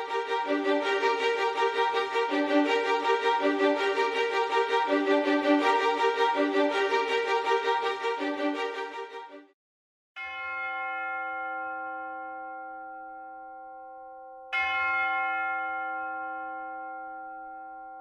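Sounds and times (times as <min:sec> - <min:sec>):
large bell ringing: 0:10.2 - 0:18.0.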